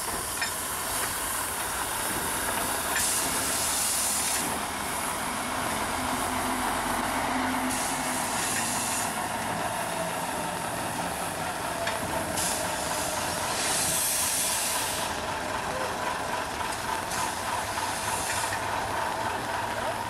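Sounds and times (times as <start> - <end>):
steam locomotive hissing: 0.0 - 20.0.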